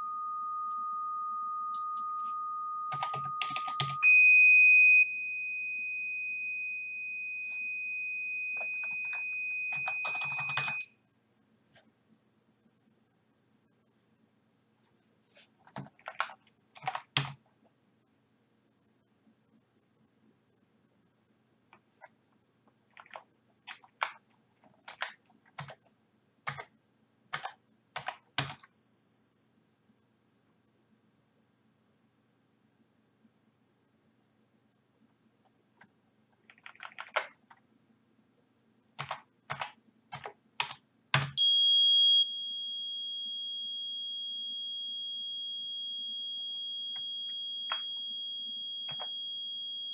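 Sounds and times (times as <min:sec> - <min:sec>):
steady sine test tone: 0:00.0 - 0:49.9
computer keyboard typing: 0:02.9 - 0:04.0, 0:08.7 - 0:10.8, 0:15.7 - 0:17.4, 0:22.9 - 0:25.8, 0:26.4 - 0:26.7, 0:27.3 - 0:28.6, 0:36.5 - 0:37.4, 0:39.0 - 0:41.4, 0:48.9 - 0:49.1.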